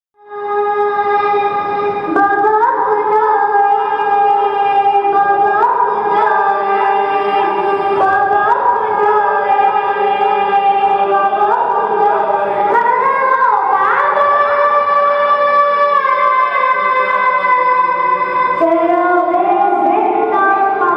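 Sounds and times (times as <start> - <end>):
steady held drone: 0.2 - 20.9
boy chanting a lament: 0.3 - 20.9.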